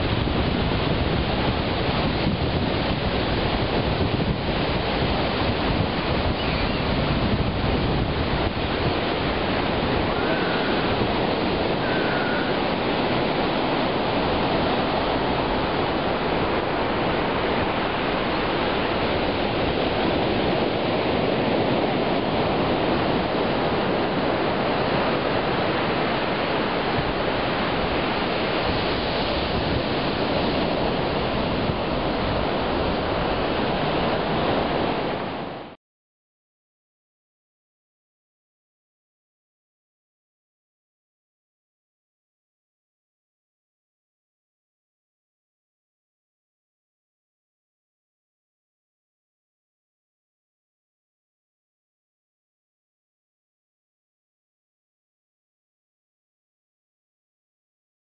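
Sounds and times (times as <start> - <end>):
wind buffeting microphone: 0.0 - 35.7
ocean surf breaking: 0.0 - 35.8.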